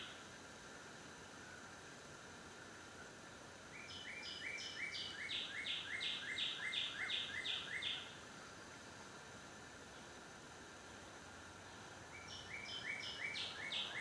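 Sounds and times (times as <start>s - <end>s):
songbird singing: 0.0s - 0.3s, 3.6s - 9.0s, 9.6s - 14.0s
faint outdoor background: 0.0s - 14.0s.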